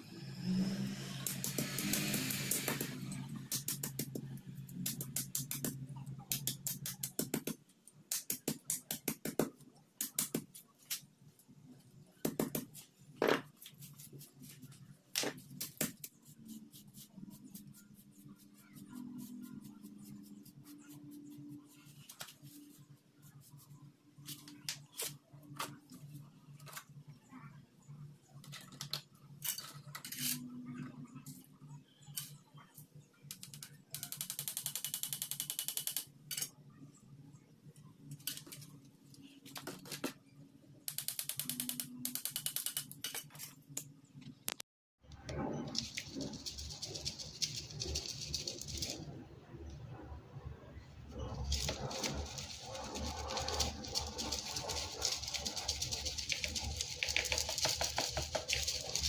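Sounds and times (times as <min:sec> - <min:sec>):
sieve shaking ticking: 0:45.6 - 0:49.0, 0:51.3 - 0:59.0
powder sifting through mesh: 0:45.7 - 0:49.1, 0:51.2 - 0:59.0.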